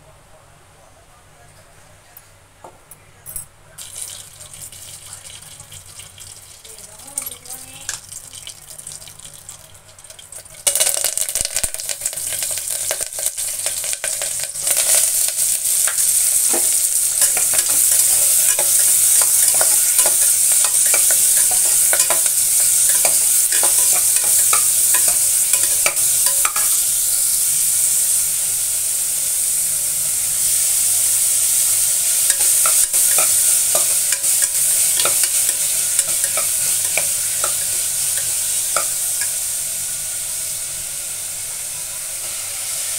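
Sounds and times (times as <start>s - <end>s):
onions sizzling in hot oil: 3.8s - 42.9s
steel spoon scraping a pot: 12.0s - 26.8s, 32.3s - 39.4s.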